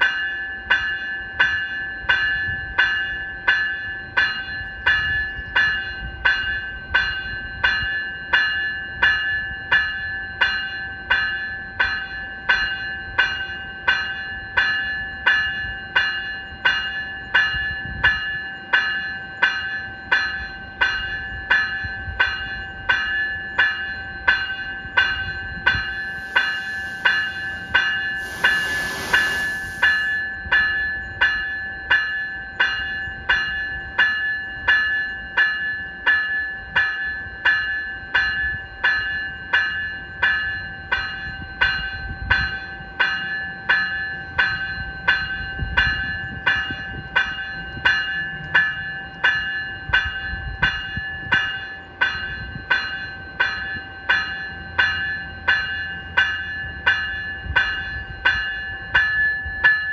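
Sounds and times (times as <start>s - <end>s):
locomotive bell ringing: 0.0s - 59.9s
burst of hiss: 25.8s - 30.2s.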